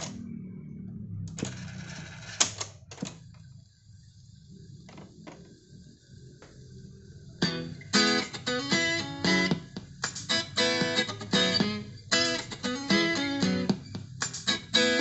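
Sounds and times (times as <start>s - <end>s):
low hum: 0.0s - 2.4s.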